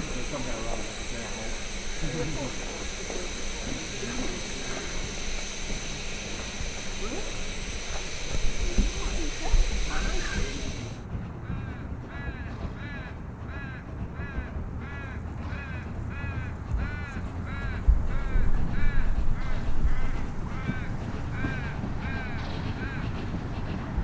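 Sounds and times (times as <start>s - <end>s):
high squeal: 0.0s - 11.0s
steam exhaust rumble: 0.0s - 11.7s.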